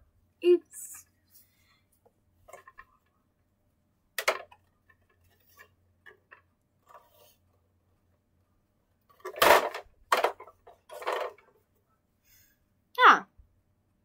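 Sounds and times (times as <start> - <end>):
toys clicking and rustling: 1.9 - 3.2, 4.2 - 7.4, 9.0 - 11.6.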